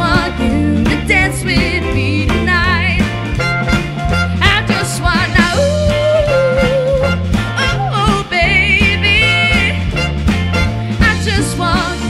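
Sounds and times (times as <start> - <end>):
woman singing: 0.0 - 3.1, 4.4 - 9.9, 11.0 - 12.0
bass line: 0.0 - 12.0
drums: 0.0 - 12.0.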